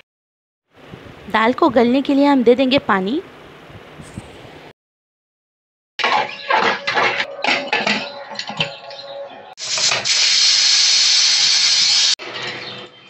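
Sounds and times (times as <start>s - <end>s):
pressure cooker whistling: 9.6s - 12.2s.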